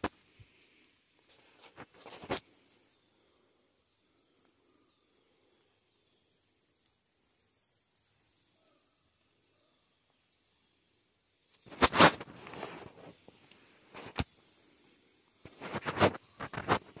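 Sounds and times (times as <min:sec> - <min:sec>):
scuffing crackling near microphone: 0:01.3 - 0:02.4, 0:11.7 - 0:14.3, 0:15.4 - 0:17.0
high bird whistles sliding down: 0:15.6 - 0:16.5.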